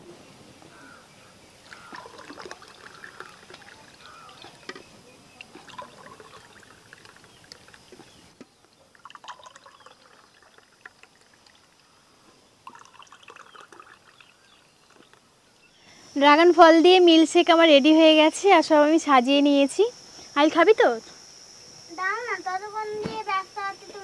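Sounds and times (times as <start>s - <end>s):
milkshake splashing trickle: 1.6s - 8.2s, 8.8s - 12.0s, 12.6s - 15.2s.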